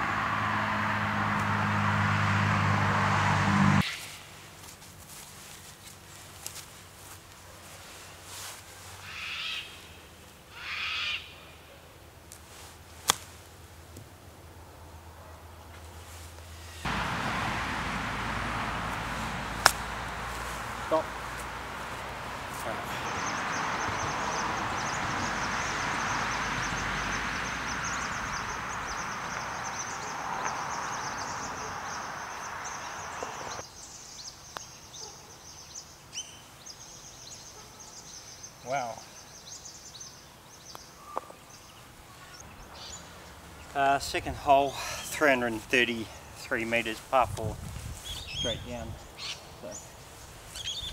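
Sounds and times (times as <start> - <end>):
steady outdoor noise: 0.0 - 50.9
drawn-out bird calls: 9.0 - 11.6, 16.9 - 33.6, 48.0 - 50.9
golf club striking ball: 19.5 - 20.0.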